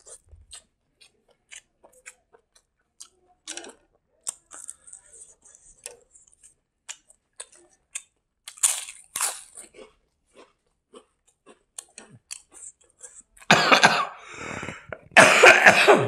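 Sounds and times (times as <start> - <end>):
close chewing and mouth clicks: 0.0 - 13.5
man coughing: 13.5 - 16.0
throat clearing: 13.5 - 16.0.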